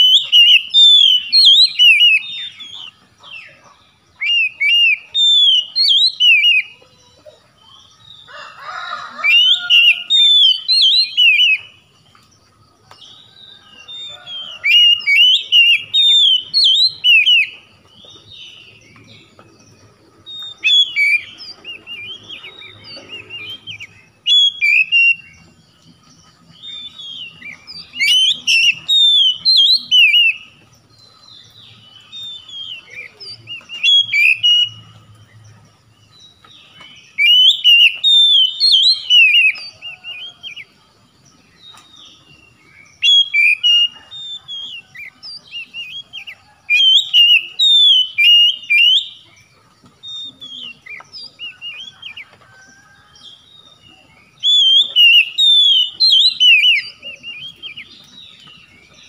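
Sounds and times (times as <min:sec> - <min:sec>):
bird singing whistled phrases: 0:00.0 - 0:03.0, 0:04.2 - 0:06.8, 0:09.3 - 0:11.8, 0:13.8 - 0:17.6, 0:20.3 - 0:25.4, 0:26.7 - 0:30.6, 0:32.0 - 0:34.8, 0:37.1 - 0:40.5, 0:42.9 - 0:49.3, 0:54.3 - 0:58.8.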